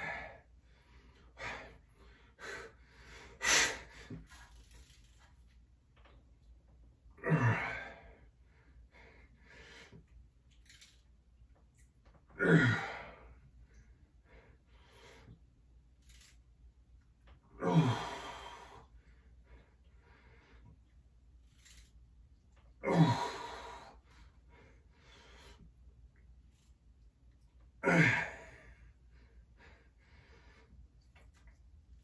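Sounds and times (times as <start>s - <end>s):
man breathing hard: 0.0s - 4.3s, 17.6s - 20.8s, 22.9s - 25.7s, 27.8s - 30.8s.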